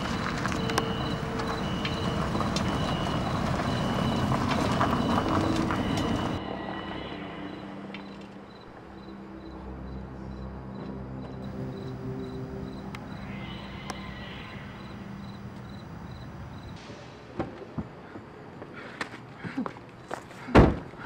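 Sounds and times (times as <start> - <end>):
car engine: 0.0 - 6.5
tyres rumbling on cobblestones: 0.0 - 6.8.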